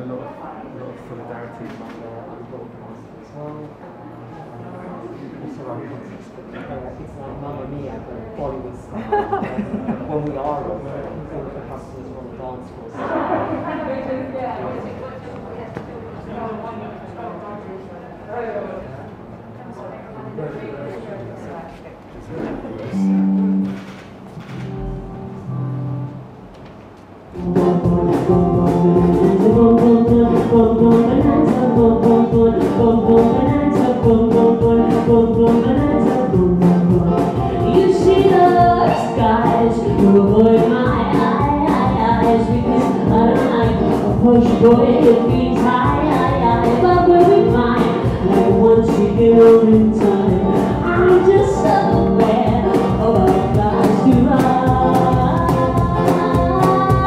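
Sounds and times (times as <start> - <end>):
live band music with singing: 22.4 - 26.3, 27.3 - 57.0.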